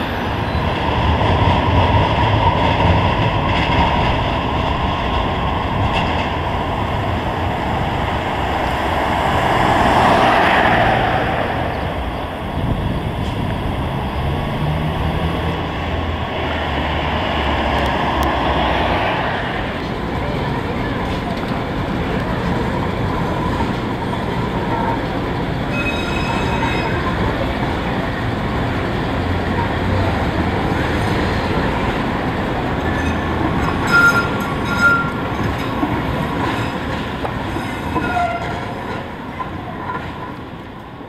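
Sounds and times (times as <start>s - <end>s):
light-rail car rumbling on rails: 0.0s - 41.0s
high wheel squeals: 25.7s - 27.1s, 32.8s - 35.7s, 37.6s - 38.8s.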